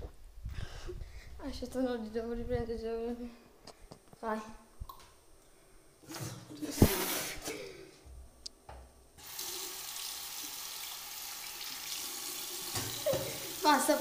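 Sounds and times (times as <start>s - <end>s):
tap water running into sink: 9.2s - 14.0s.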